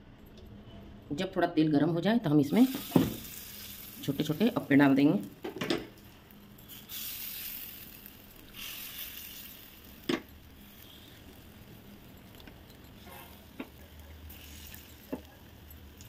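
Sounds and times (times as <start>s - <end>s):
batter sizzling in hot oil: 2.3s - 16.0s.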